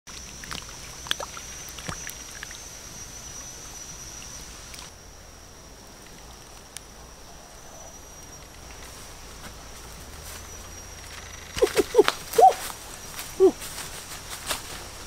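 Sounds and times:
shallow water splashing: 0.1 - 2.8
high-pitched insect drone: 0.8 - 13.6.

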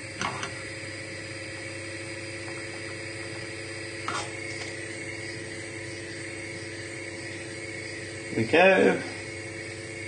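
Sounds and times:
low hum with hiss: 0.0 - 10.0
spoon scraping in a saucepan: 4.0 - 4.7.

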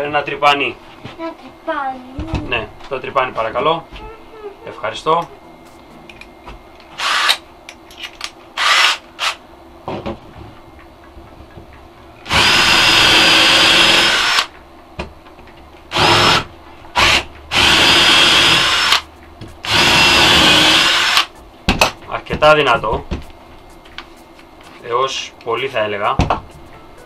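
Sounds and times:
cordless drill drilling into wood: 7.0 - 7.4, 8.6 - 9.4, 12.3 - 14.5, 15.9 - 19.0, 19.6 - 21.3.

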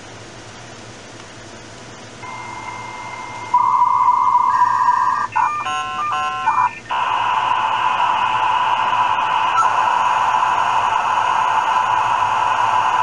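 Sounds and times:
chirping modem tones: 2.2 - 7.1
loud modem hiss: 2.2 - 13.0.

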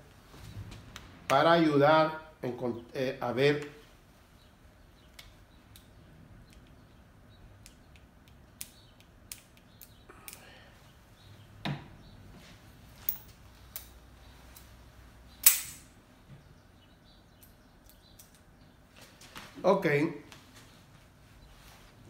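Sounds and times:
loud sharp click: 15.4 - 15.9.

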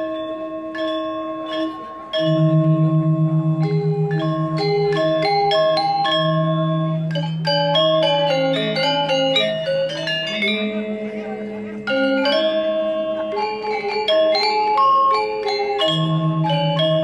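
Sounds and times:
metallophones struck with mallets: 0.0 - 17.0.

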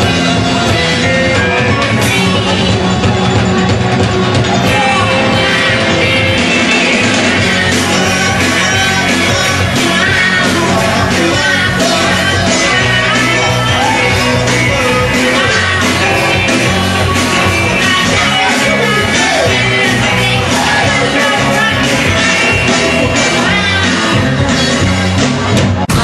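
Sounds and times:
rock band playing live: 0.0 - 26.0
lead vocalist singing: 4.5 - 25.1.

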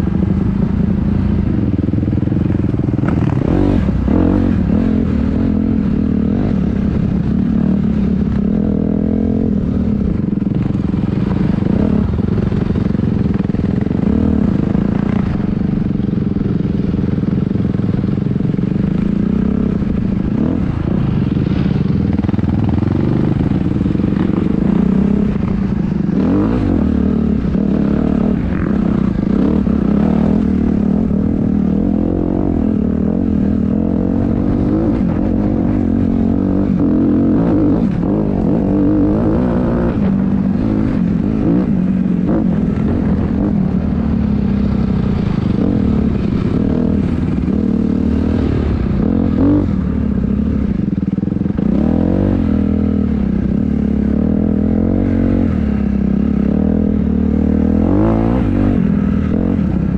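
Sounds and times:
dirt bike engine revving: 18.4 - 59.9.

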